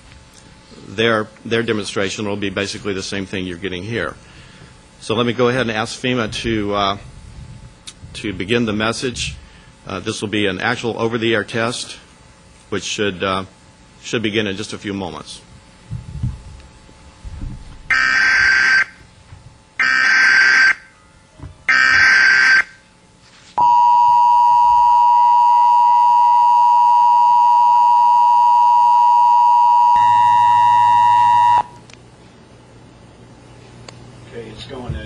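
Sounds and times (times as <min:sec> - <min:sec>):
two-tone alert signal: 0:23.6 - 0:31.8.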